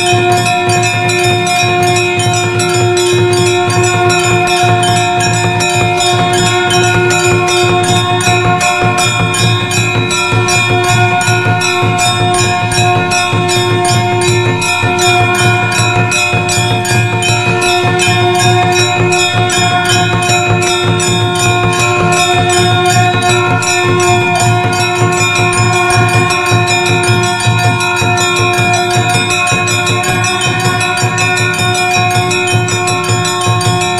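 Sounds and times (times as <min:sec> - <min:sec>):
temple bells ringing rapidly: 0:00.0 - 0:33.9.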